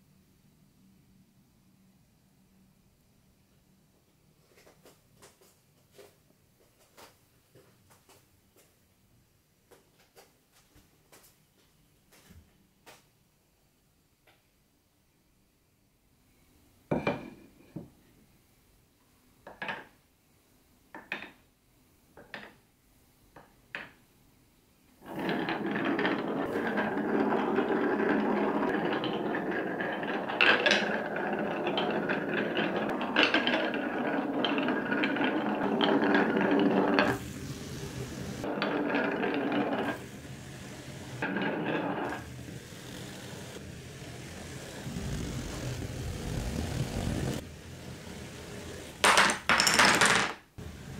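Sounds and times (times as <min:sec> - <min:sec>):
marbles clicking on wooden tracks: 0:25.0 - 0:50.4
marbles rolling on wood: 0:25.0 - 0:50.9.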